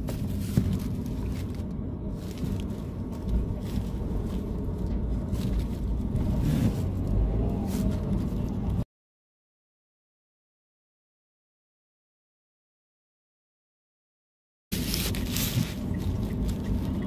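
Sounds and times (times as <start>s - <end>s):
car engine and road rumble: 0.0s - 8.9s, 14.7s - 17.0s.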